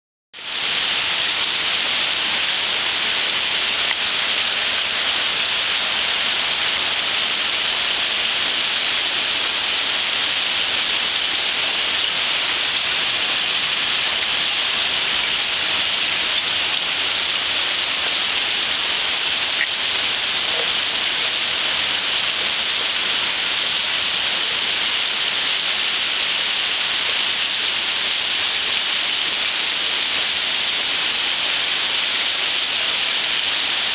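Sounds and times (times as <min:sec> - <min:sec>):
steady rain on concrete: 0:00.4 - 0:33.9.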